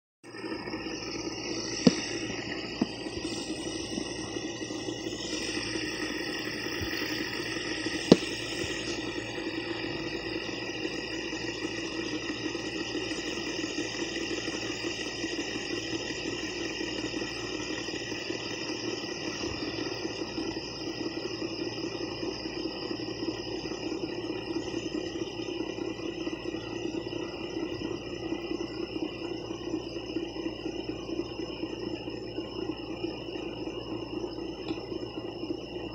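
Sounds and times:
fidget spinner whirring: 0:00.3 - 0:32.4.

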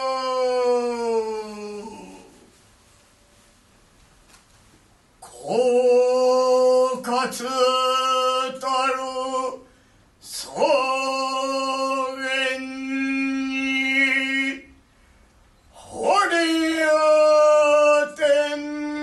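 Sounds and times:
man chanting in long tones: 0:00.0 - 0:02.5, 0:05.2 - 0:14.8, 0:15.8 - 0:19.0.

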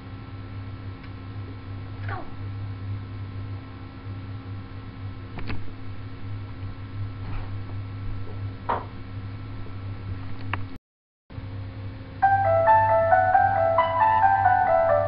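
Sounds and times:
low electrical hum: 0:00.0 - 0:10.8, 0:11.4 - 0:15.0.

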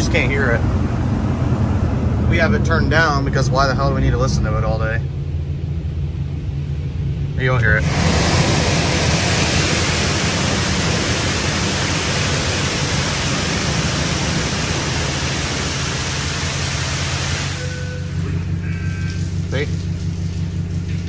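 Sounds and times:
car wash spray hissing: 0:07.7 - 0:21.0.

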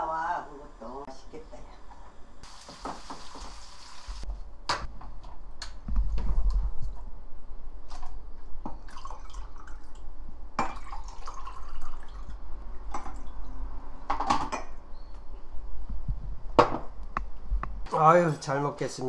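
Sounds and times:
utensils clinking on dishes: 0:17.9 - 0:19.0.

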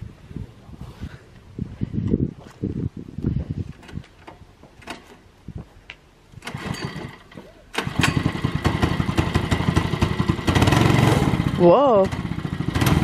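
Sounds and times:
small petrol engine starting: 0:06.4 - 0:13.0.

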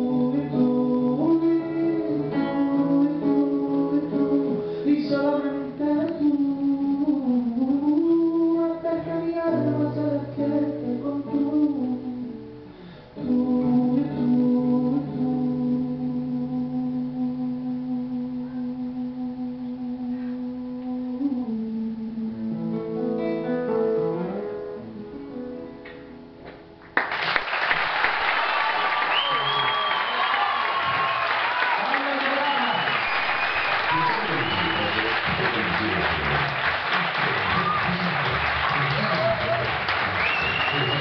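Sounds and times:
man singing: 0:00.0 - 0:12.6, 0:13.2 - 0:23.2
acoustic guitar: 0:00.0 - 0:27.4
audience applause: 0:27.0 - 0:41.0.

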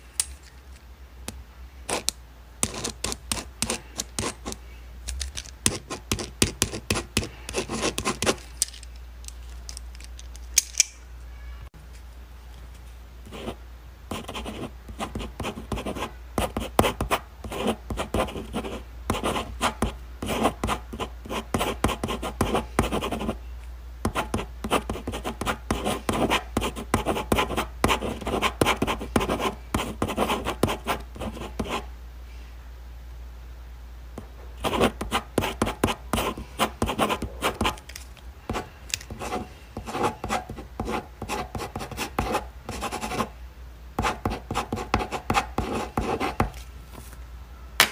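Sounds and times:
pen scratching on paper: 0:01.9 - 0:04.6, 0:05.7 - 0:08.4, 0:13.3 - 0:23.4, 0:24.1 - 0:31.8, 0:34.6 - 0:37.8, 0:38.5 - 0:43.3, 0:44.0 - 0:46.6.

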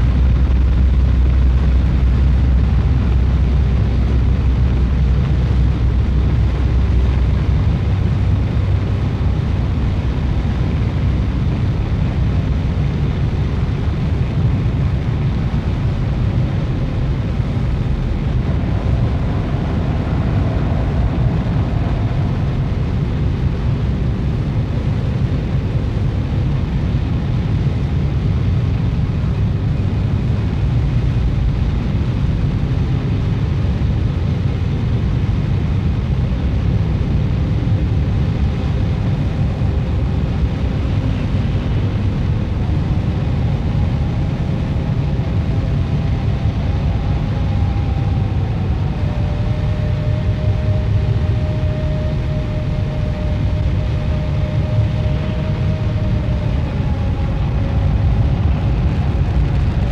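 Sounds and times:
faint high hum: 0:00.0 - 0:59.9
low rumbling drone: 0:00.0 - 0:59.9.

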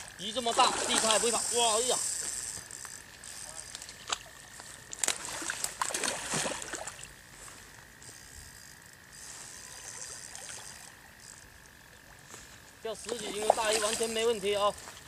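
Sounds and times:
water noise: 0:00.0 - 0:07.7, 0:09.5 - 0:15.0
fish splashing at water surface: 0:04.0 - 0:07.1.

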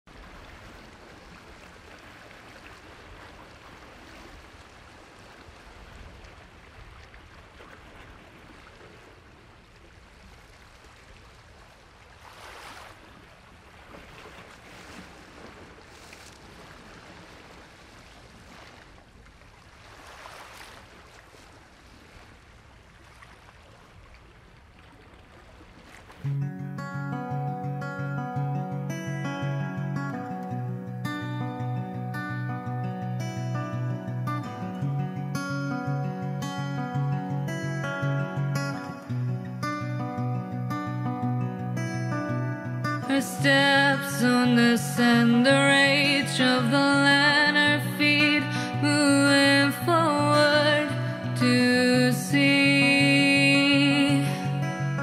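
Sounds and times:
guitar music: 0:26.2 - 0:55.0.

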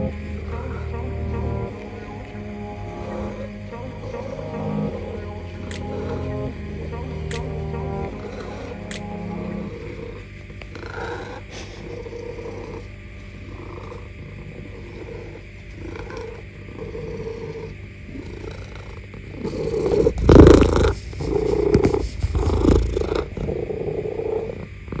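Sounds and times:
cat purring: 0:00.0 - 0:25.0
fur brushing against microphone: 0:20.8 - 0:23.3.

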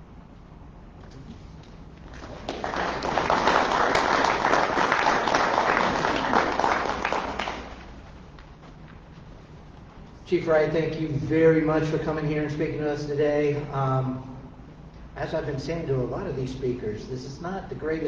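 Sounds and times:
audience applauding: 0:02.0 - 0:08.0.

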